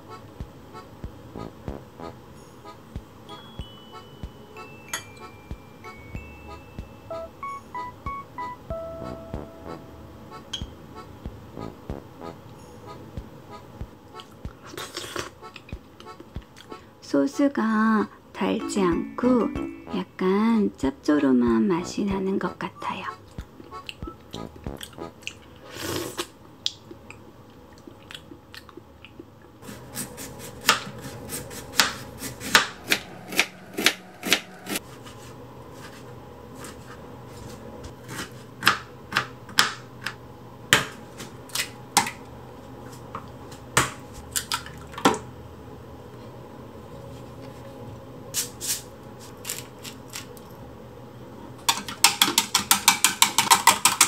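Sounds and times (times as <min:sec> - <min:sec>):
eggs beaten in plastic jug: 0:51.8 - 0:54.0.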